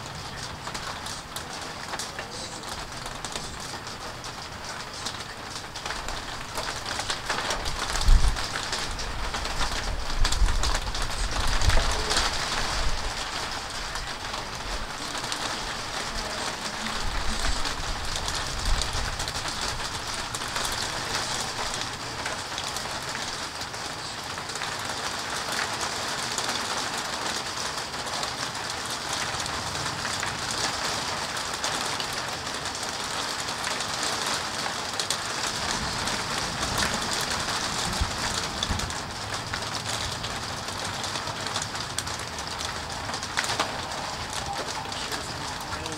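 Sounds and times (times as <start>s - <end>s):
low thunder rumbling: 0.0s - 23.7s, 35.2s - 45.9s
steady rain hiss: 0.0s - 45.9s.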